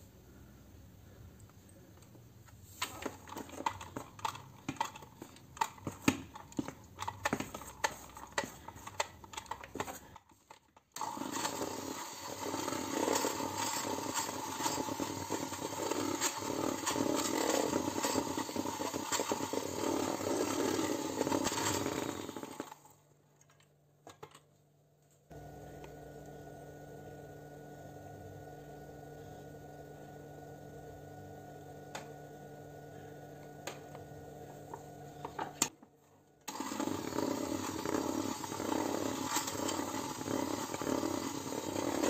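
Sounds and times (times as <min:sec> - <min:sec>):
electric hand mixer whirring: 0:11.0 - 0:22.9, 0:25.3 - 0:35.6, 0:36.5 - 0:42.0.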